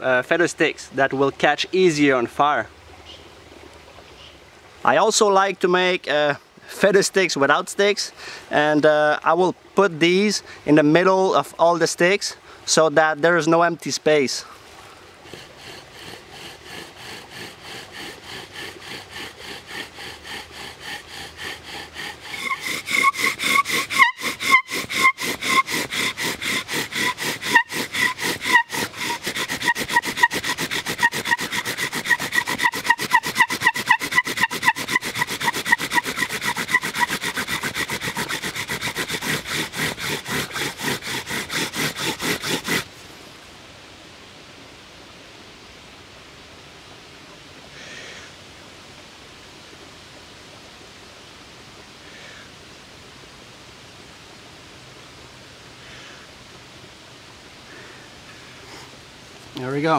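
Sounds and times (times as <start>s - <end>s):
bow drill grinding rub: 15.3s - 42.9s
wooden spindle squeaking: 15.3s - 42.9s.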